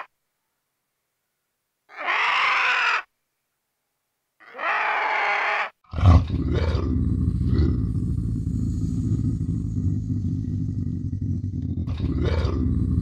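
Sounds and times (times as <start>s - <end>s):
pitched animal calls: 1.9s - 3.1s, 4.4s - 6.8s
low continuous rumbling: 6.0s - 13.0s.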